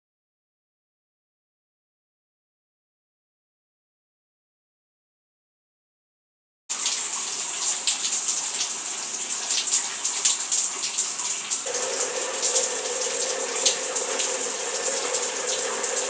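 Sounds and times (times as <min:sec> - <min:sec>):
shower spray splashing on tiles: 0:06.7 - 0:16.0
steady hum: 0:11.7 - 0:16.0.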